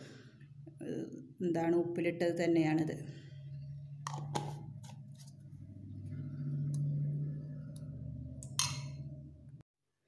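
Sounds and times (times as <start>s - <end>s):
low hum: 2.4s - 9.6s.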